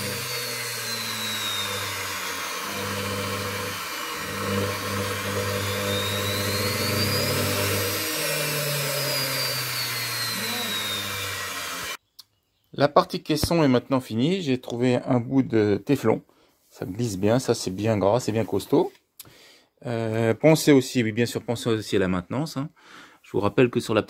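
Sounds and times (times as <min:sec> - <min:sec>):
electric motor whining: 0:00.0 - 0:12.0.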